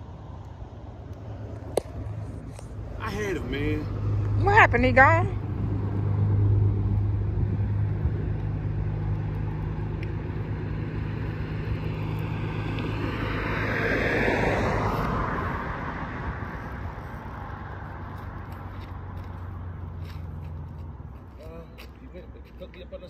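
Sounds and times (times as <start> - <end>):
car passing: 0.0 - 23.0.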